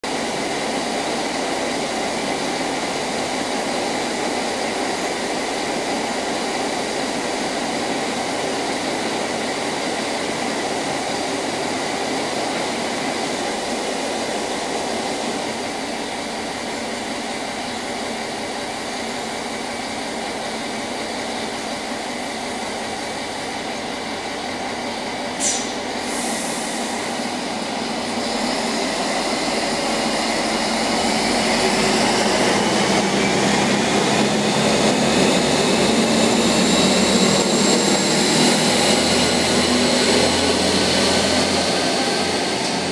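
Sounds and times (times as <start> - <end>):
diesel railcar engine running: 0.0 - 42.9
brief shrill sound: 25.4 - 25.9.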